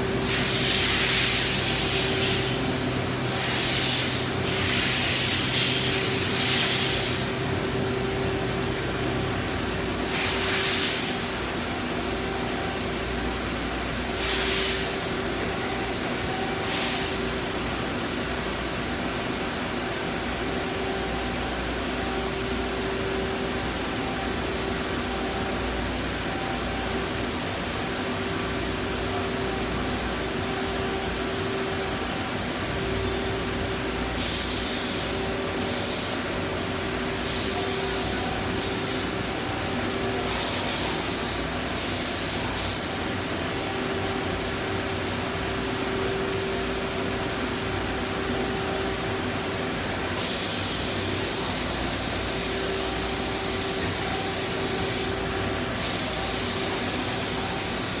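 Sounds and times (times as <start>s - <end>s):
hissing spray: 37.2s - 39.2s, 55.8s - 58.0s.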